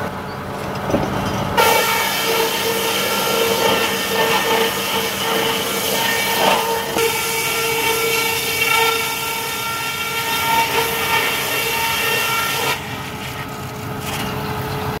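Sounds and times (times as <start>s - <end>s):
sawmill machine drone: 0.0s - 15.0s
saw cutting board hiss: 1.6s - 12.8s.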